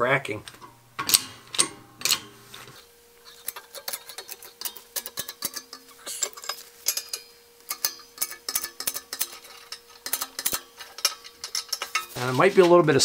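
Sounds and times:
faint steady hum: 0:00.0 - 0:13.0
jack pump linkage clicking and clanking: 0:00.4 - 0:12.3.

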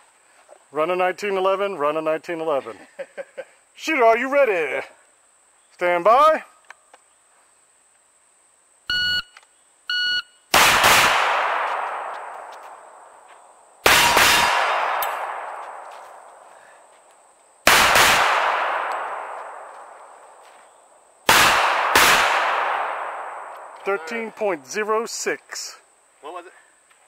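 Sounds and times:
shot timer beeps: 0:08.9 - 0:10.4
pistol shots with echo: 0:10.5 - 0:12.5, 0:13.8 - 0:16.1, 0:17.6 - 0:20.0, 0:21.3 - 0:23.8.

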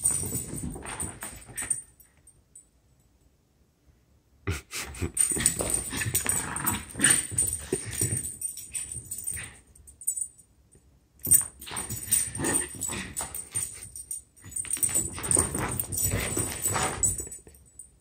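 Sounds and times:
small dog play-fighting: 0:00.0 - 0:01.8, 0:05.1 - 0:09.6, 0:11.3 - 0:17.3.

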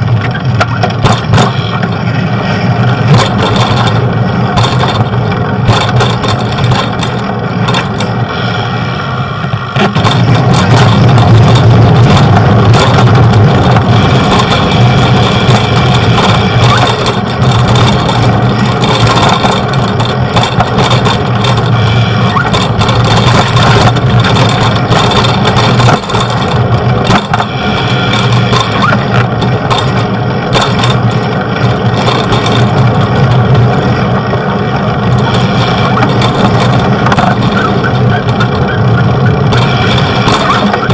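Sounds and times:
vehicle engines humming: 0:00.0 - 0:40.9.

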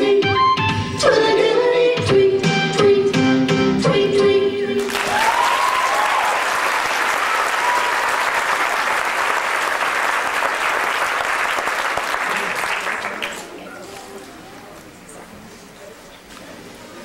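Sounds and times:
audience applause: 0:04.8 - 0:13.5.

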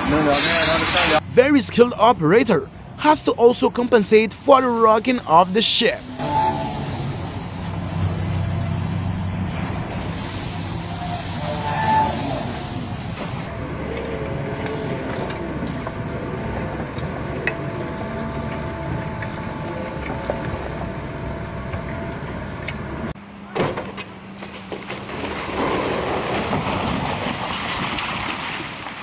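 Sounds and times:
excavator engine and hydraulics whine: 0:00.0 - 0:27.4
concrete breaking: 0:24.7 - 0:29.0.

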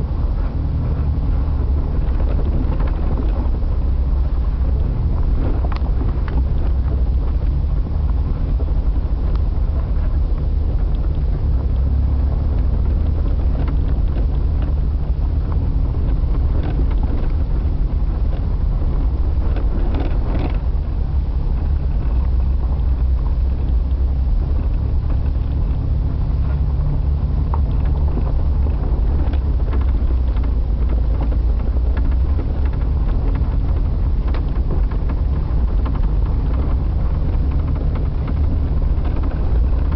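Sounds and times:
vehicle engine running: 0:00.0 - 0:39.9
wind noise on microphone: 0:00.0 - 0:39.9
rattles and knocks: 0:00.4 - 0:39.9.

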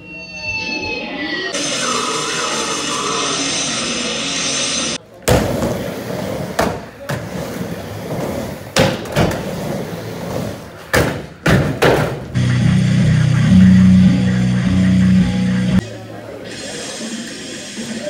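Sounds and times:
skateboard hitting ramp: 0:05.2 - 0:12.4
skateboard wheels rolling on wood: 0:05.2 - 0:12.5
music: 0:12.4 - 0:15.8.

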